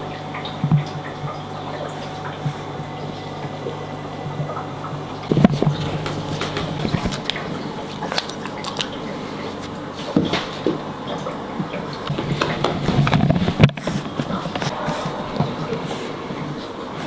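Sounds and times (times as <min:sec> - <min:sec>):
puppy playing against camera: 0:05.3 - 0:10.8.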